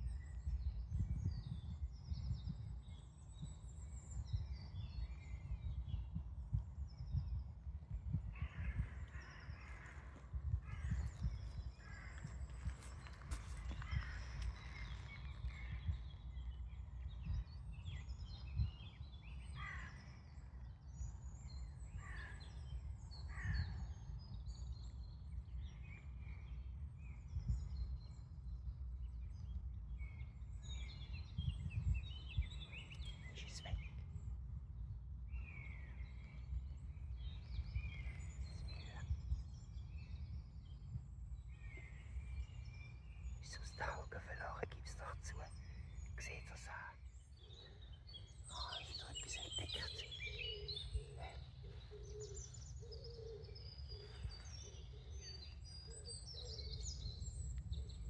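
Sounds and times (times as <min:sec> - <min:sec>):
wild birds singing and calling: 0:00.0 - 0:58.0
steady low rumble: 0:05.6 - 0:18.8.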